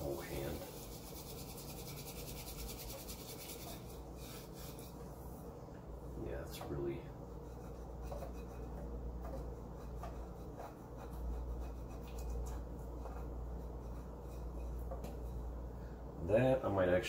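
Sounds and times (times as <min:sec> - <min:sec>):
fingers scrubbing a pan: 0:00.0 - 0:05.1, 0:07.4 - 0:15.5.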